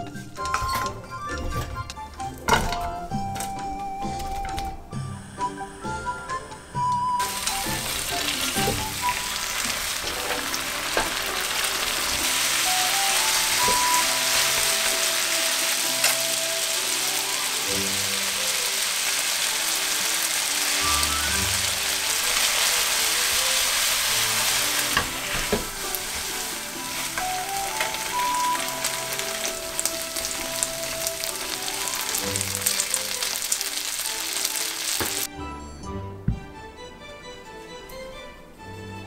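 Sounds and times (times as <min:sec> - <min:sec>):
food sizzling in frying pan: 0:07.2 - 0:35.3.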